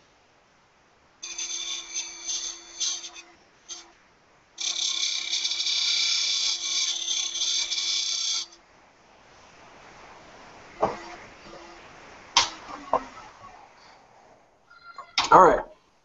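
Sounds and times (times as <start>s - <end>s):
lathe tool cutting wood: 1.2s - 3.9s, 4.6s - 8.6s.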